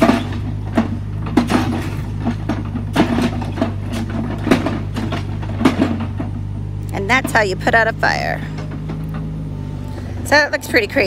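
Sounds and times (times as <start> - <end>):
bucket knocking and clanking: 0.0 - 7.8
excavator diesel engine running: 0.0 - 11.0.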